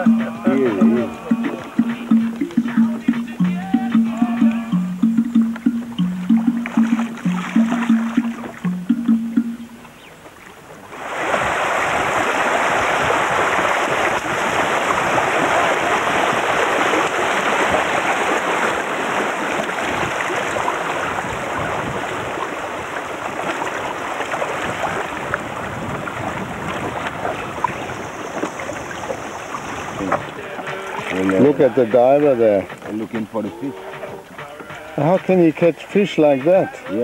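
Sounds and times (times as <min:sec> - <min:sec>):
river water rushing over rapids: 0:10.8 - 0:31.7.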